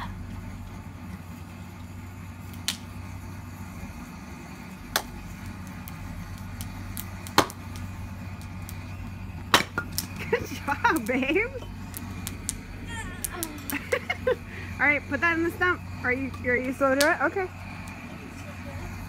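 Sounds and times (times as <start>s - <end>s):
steady low hum: 0.0s - 19.0s
axe chopping wood: 7.2s - 7.6s.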